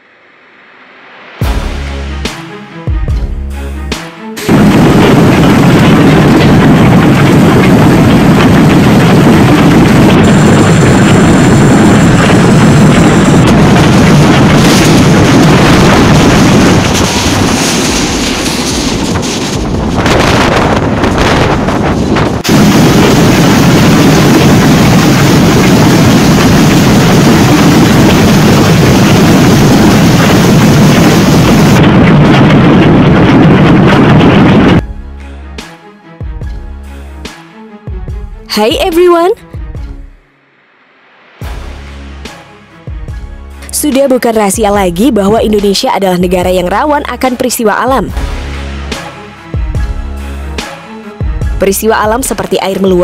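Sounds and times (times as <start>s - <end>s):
heavy rain rushing: 4.4s - 34.8s
hailstones striking: 4.5s - 34.2s
wind buffeting microphone: 4.5s - 34.9s.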